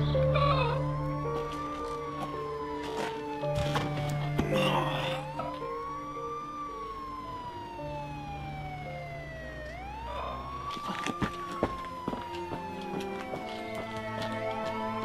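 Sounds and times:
emergency siren wailing: 0.0s - 15.0s
low synth music: 0.0s - 15.0s.

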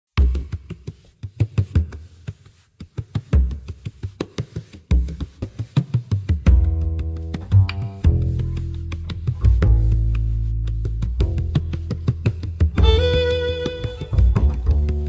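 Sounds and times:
deep bass thumps: 9.1s - 15.0s.

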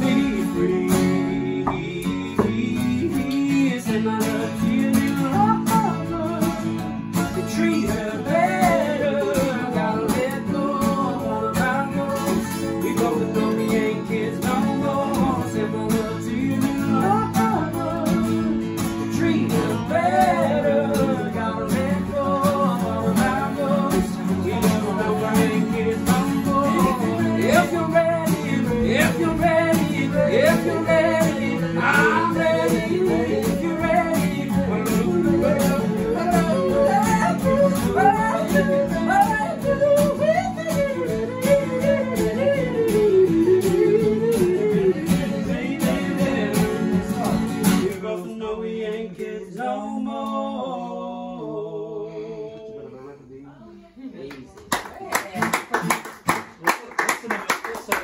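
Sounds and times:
acoustic guitars strumming: 0.0s - 50.6s
person singing: 0.0s - 53.9s.

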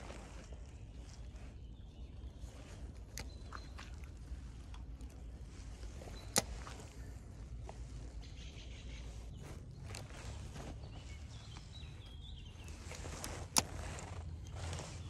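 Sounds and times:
low steady rumble: 0.0s - 15.0s
fishing reel clicks and rustles: 2.5s - 8.3s, 11.5s - 15.0s.

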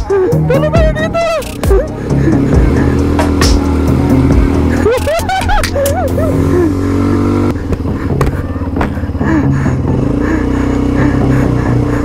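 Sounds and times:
quad bike engine running: 0.0s - 12.0s
tyres on gravel: 4.6s - 9.4s.

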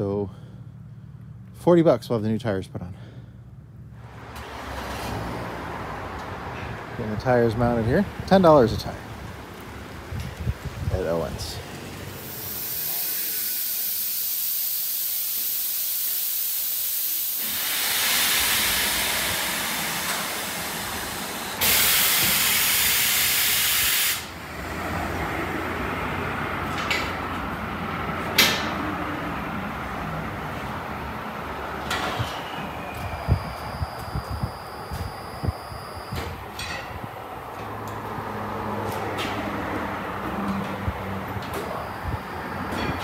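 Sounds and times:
compressed air hissing: 12.1s - 24.4s
loud blast of air: 12.1s - 24.4s.

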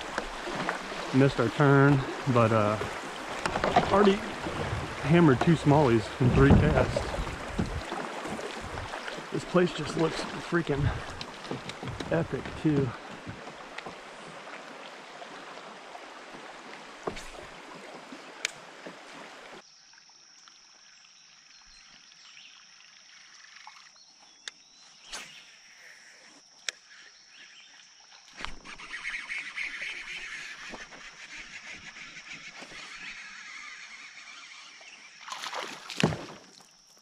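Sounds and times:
river water rushing: 0.0s - 19.6s.

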